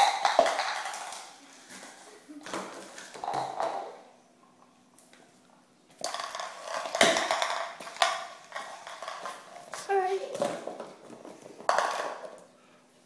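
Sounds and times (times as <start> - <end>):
cup knocking on tile floor: 0.0 - 1.2, 3.1 - 4.0, 6.0 - 9.4, 10.4 - 12.4.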